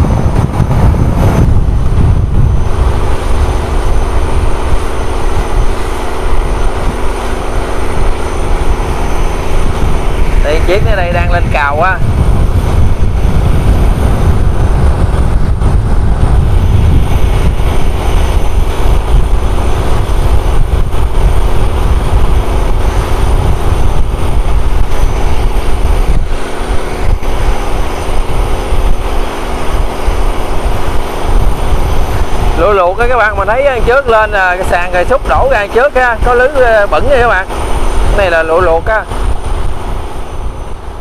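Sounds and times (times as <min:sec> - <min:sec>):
boat diesel engine running: 0:00.0 - 0:41.0.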